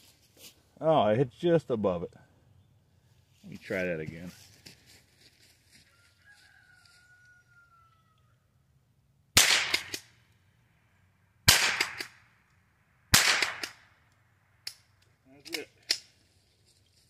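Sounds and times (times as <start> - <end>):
rifle shots echoing: 9.4 - 10.1, 11.5 - 12.2, 13.1 - 13.9.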